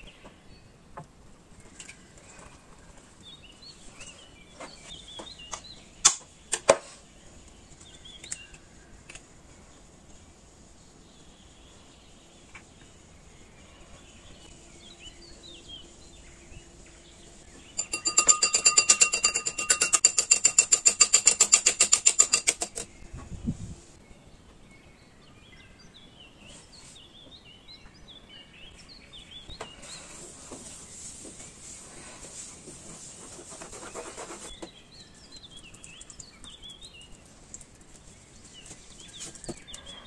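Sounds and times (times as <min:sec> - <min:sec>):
fork beating egg in glass bowl: 0:17.8 - 0:23.0.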